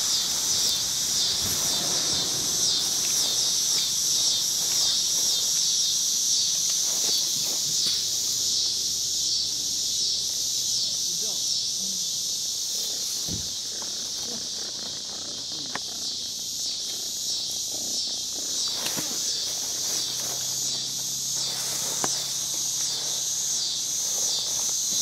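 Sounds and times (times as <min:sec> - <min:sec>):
insects chorus pulsing: 0:00.0 - 0:25.0
faint rustles and ticks: 0:12.7 - 0:25.0.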